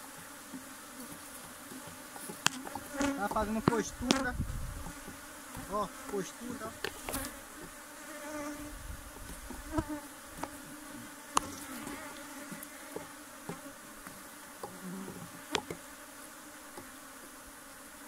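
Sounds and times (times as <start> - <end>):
honeybees buzzing: 0.0 - 18.0.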